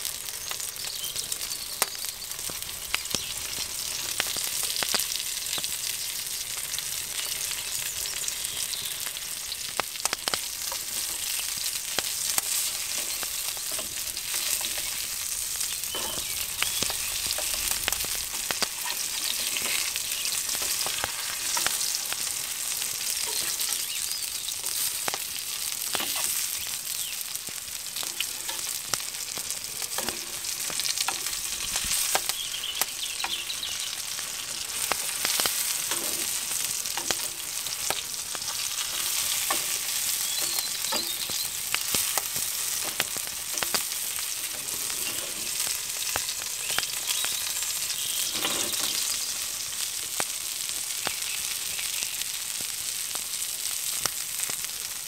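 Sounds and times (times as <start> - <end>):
frying in hot oil: 0.0 - 55.0
metal spatula scraping pan: 15.9 - 21.9, 29.9 - 31.4, 35.3 - 36.4, 44.5 - 45.7, 48.2 - 49.0.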